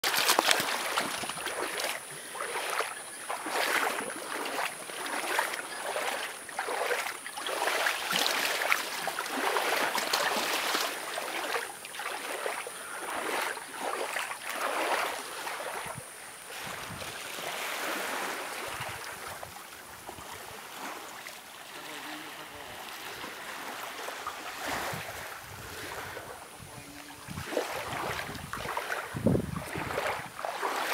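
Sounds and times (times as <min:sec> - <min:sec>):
feet wading through water: 0:00.0 - 0:30.9.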